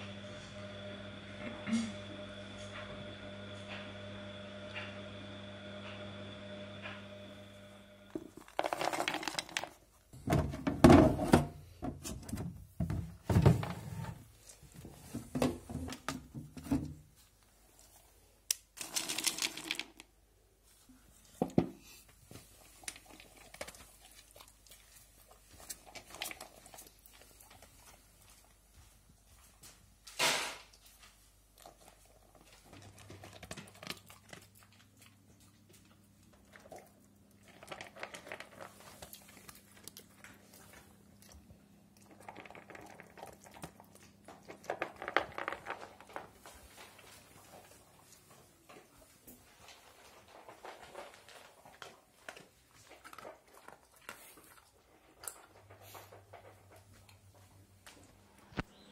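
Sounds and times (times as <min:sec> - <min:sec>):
dogs crunching kibble: 0:08.1 - 0:09.8, 0:18.6 - 0:20.1, 0:22.6 - 0:28.6, 0:31.5 - 0:48.4, 0:49.6 - 0:58.1.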